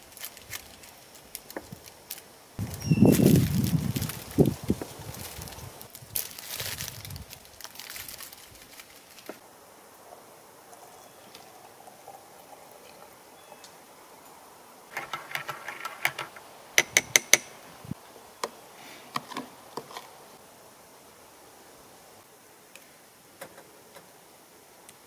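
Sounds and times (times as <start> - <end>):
faint handling sounds: 0.0 - 9.4.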